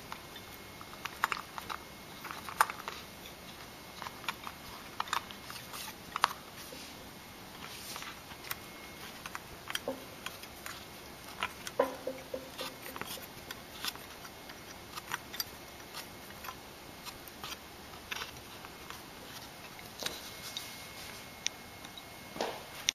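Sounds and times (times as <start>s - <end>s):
scissors cutting cable: 8.4s - 19.5s.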